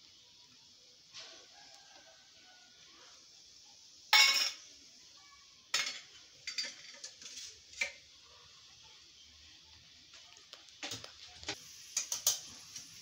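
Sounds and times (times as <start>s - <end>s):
metal kitchenware clinking: 4.1s - 4.6s, 5.7s - 8.0s.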